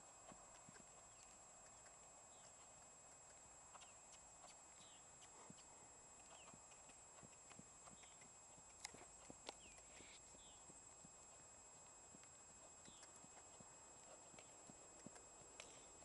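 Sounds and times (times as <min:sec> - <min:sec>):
steady hiss: 0:00.0 - 0:16.0
horse hoofbeats on sand: 0:03.7 - 0:16.0.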